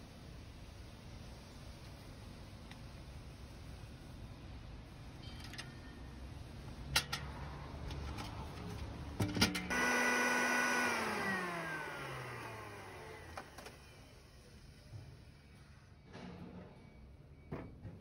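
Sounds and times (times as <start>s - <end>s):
grain mill motor whining: 9.3s - 14.1s.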